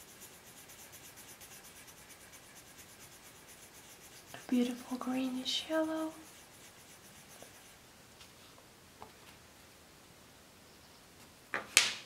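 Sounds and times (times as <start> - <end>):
pencil scratching on paper: 0.0 - 7.8.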